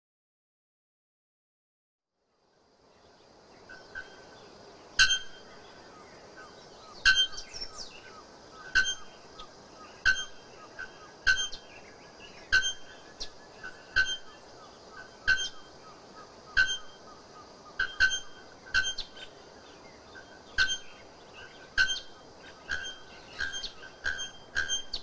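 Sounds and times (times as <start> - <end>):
bellbird ringing calls: 5.0 - 5.4, 10.0 - 10.4, 11.3 - 11.7, 12.5 - 12.9, 15.3 - 15.6, 16.6 - 17.0, 20.6 - 21.0, 22.7 - 25.0.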